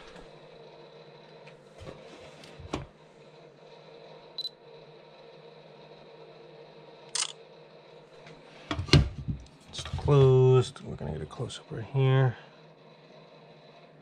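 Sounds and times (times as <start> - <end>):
camera shutter click: 7.2 - 7.4.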